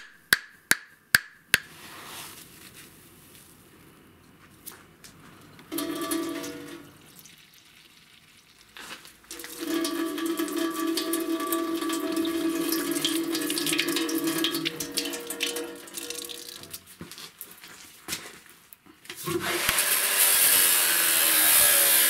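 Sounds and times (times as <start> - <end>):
water running into container: 5.7 - 16.9.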